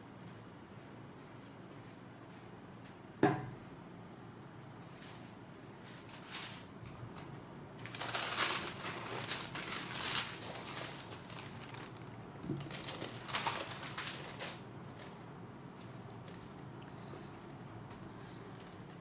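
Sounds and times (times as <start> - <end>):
paper rustling and crinkling: 4.9 - 15.2.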